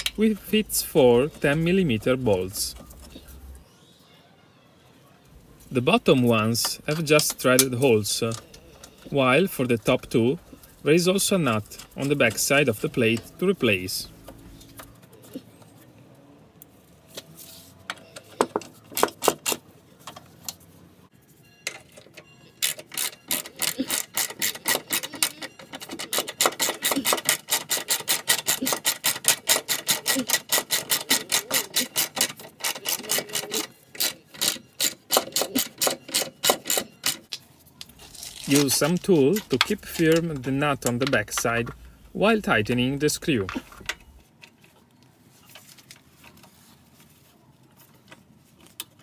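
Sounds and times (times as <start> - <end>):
handling noises: 0.0 - 3.7, 5.0 - 49.0
ratchet wrench clicking: 22.6 - 37.3.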